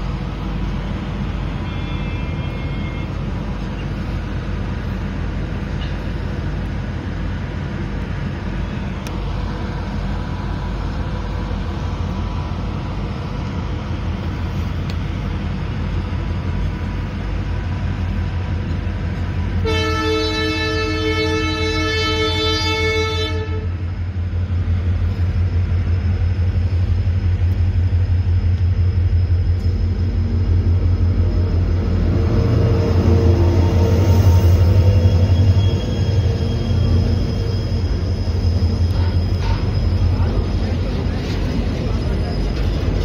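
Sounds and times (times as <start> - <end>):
locomotive engine rumble: 0.0 - 43.0
locomotive horn: 1.6 - 3.3, 19.6 - 23.8.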